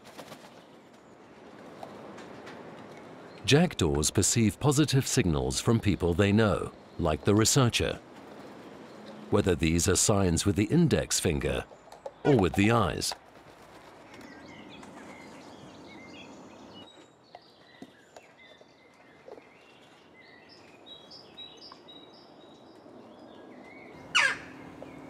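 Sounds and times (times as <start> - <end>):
small birds chirping: 4.6 - 25.0
jackdaw call: 24.0 - 24.6.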